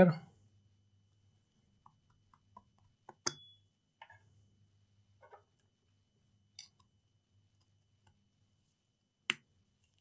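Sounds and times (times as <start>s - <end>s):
sharp metallic clink: 3.2s - 3.6s.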